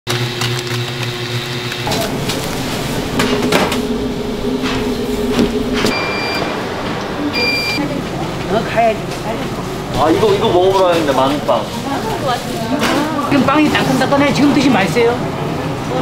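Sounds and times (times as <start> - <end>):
kitchen machinery humming: 0.1 - 16.0
short electronic beeps: 5.9 - 6.5, 7.3 - 7.8.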